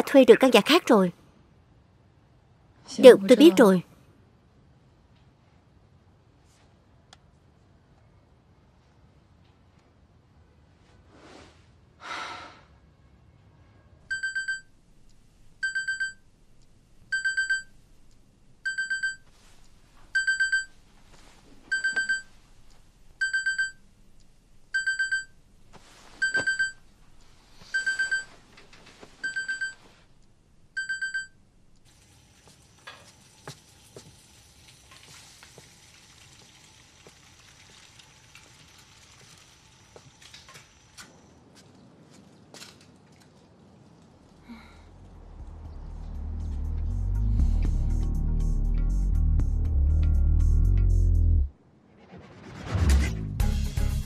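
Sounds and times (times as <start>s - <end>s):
telephone ringing: 14.1s - 14.7s.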